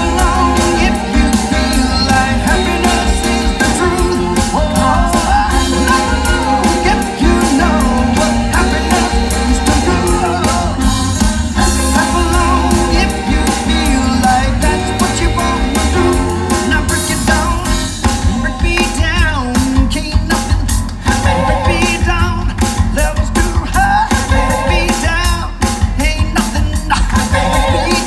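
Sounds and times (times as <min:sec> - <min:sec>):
bass guitar: 0:00.0 - 0:28.0
keyboards: 0:00.0 - 0:28.0
person singing: 0:00.0 - 0:28.0
steady drum beat: 0:00.0 - 0:28.0.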